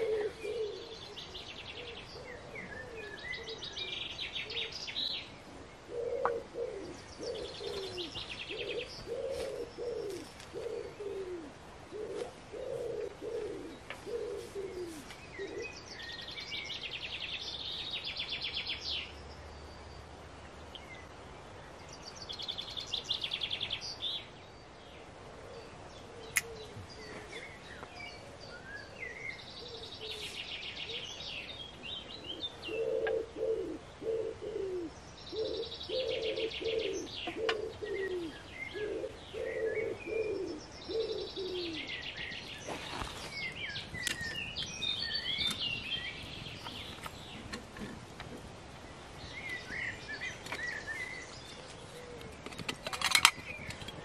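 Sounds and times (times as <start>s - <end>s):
pigeon cooing: 0.0s - 4.7s, 5.9s - 15.8s, 32.2s - 42.0s, 50.9s - 53.3s
songbird trilling: 27.8s - 47.8s.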